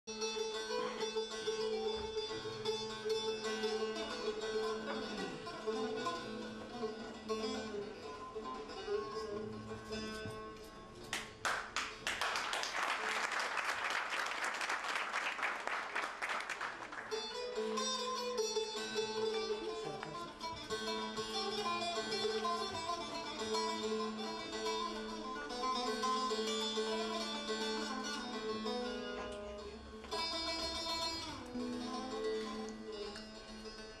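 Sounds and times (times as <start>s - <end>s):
plucked saz melody over drone: 0.1s - 11.0s, 17.1s - 34.0s
audience applauding: 11.1s - 17.4s.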